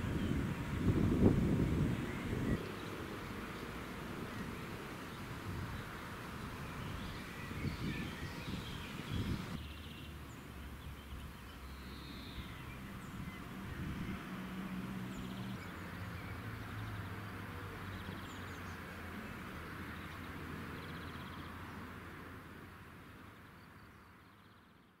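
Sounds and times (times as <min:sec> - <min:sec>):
birds chirping: 0:00.0 - 0:14.2.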